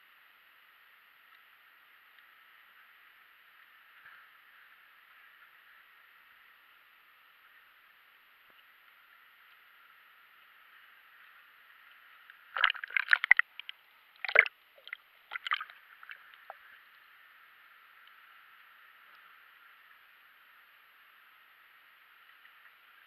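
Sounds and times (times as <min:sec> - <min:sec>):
faint steady hiss: 0:00.0 - 0:23.0
water sloshing and splashing: 0:12.5 - 0:16.6.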